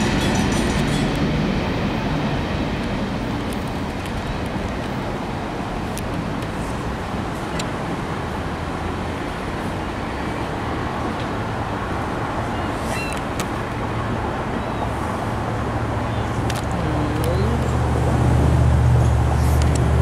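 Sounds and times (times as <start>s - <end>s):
train wheels rumbling on rails: 0.0s - 14.0s
sharp clicks and squeaks: 12.9s - 13.6s.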